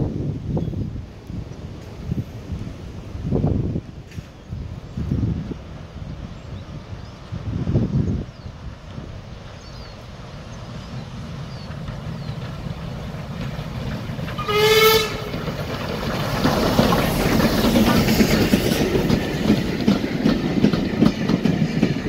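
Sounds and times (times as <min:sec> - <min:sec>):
steam locomotive exhaust and rumble: 0:00.0 - 0:22.0
train wheels clattering on track: 0:03.9 - 0:05.5, 0:08.7 - 0:22.0
steam whistle blast: 0:14.4 - 0:15.3.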